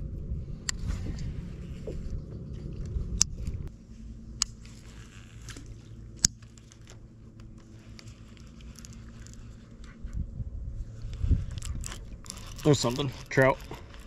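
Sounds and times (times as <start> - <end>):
fishing reel clicks: 4.4 - 5.6, 11.0 - 14.0
fishing reel cranking: 4.5 - 7.0, 7.6 - 9.9, 10.9 - 14.0.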